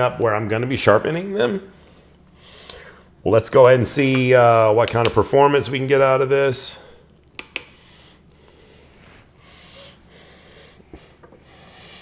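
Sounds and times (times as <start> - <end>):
soft breaths: 7.7 - 12.0.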